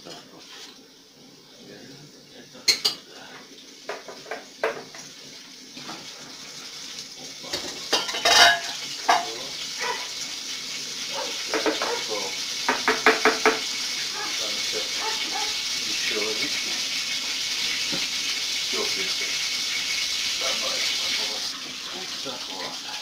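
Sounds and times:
liquid pouring and splashing: 3.5 - 23.0
plastic tub knocking on tank: 12.7 - 13.6.

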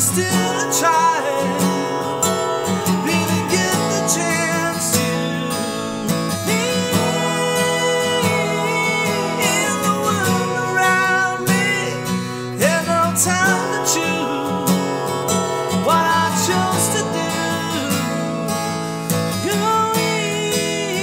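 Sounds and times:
acoustic guitar strumming: 0.0 - 21.0
man singing: 0.0 - 21.0.

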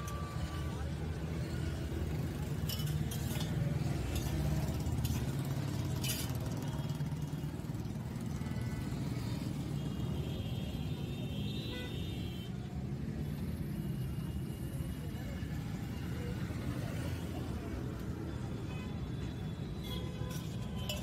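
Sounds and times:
road traffic rumble: 0.0 - 21.0
spoon clinking on steel bowls: 2.4 - 6.6, 20.3 - 21.0.

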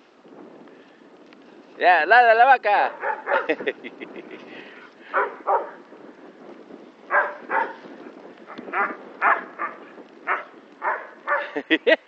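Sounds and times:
dog barking: 2.9 - 3.6, 5.1 - 5.8, 7.1 - 7.8, 8.7 - 11.6.

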